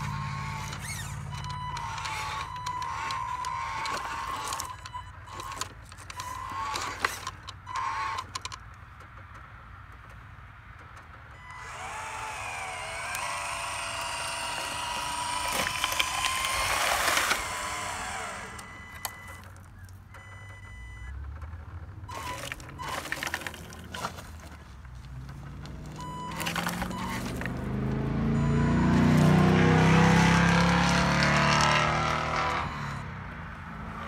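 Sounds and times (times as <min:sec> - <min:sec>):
electric hoist whining: 0:00.0 - 0:08.6, 0:11.3 - 0:34.0
rocks sliding out rattling: 0:22.1 - 0:27.6.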